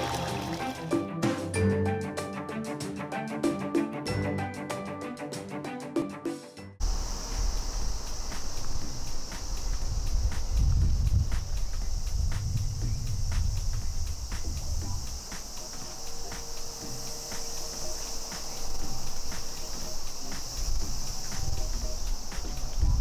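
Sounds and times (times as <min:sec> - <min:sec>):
low rumble: 0:06.8 - 0:17.0
insects singing: 0:06.8 - 0:23.0.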